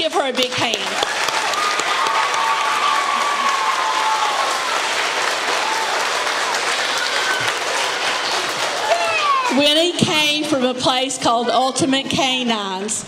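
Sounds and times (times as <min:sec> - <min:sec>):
children applauding: 0:00.4 - 0:09.7.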